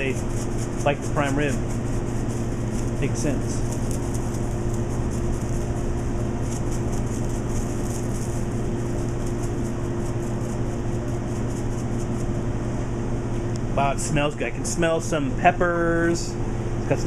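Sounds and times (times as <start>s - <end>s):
kitchen machinery hum: 0.0s - 17.0s.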